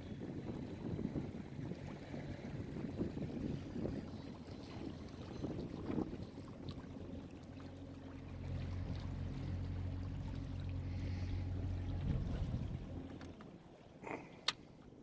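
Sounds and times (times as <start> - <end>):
wind on microphone: 0.0 - 7.0, 11.8 - 13.0
boat motor humming: 0.0 - 15.0
water rushing: 1.7 - 14.9.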